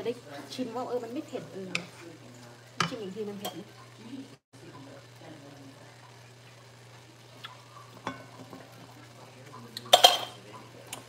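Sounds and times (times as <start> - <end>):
curry sizzling in a pan: 0.0 - 11.0
spoon stirring: 0.7 - 4.0
utensil clicking against pan: 1.6 - 2.0.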